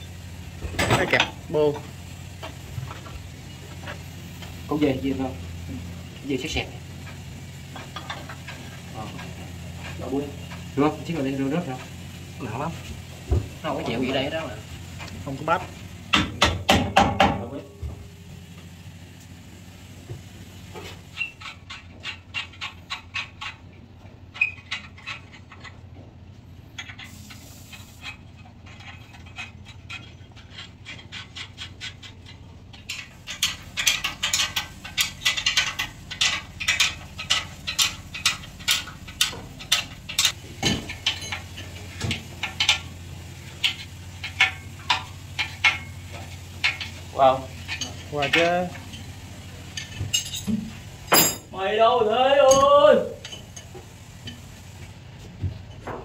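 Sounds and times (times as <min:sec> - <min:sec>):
ratchet wrench clicking: 0:26.8 - 0:40.4.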